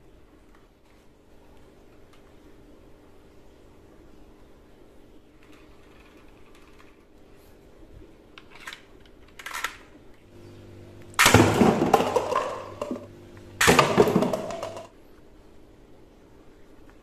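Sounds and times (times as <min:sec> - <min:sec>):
toy rifle shooting darts: 0:11.1 - 0:14.9
paper cups clattering on tile floor: 0:11.2 - 0:14.9.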